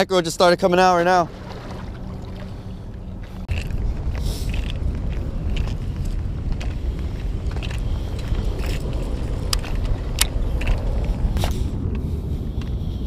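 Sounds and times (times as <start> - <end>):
road traffic: 1.0 - 13.0
wind on microphone: 1.3 - 13.0
fishing tackle clicking: 7.5 - 11.2.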